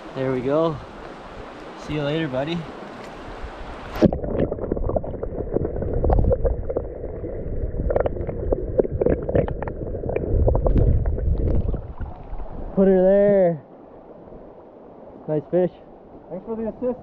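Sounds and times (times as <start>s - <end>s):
muffled underwater river rumble: 3.5s - 13.4s.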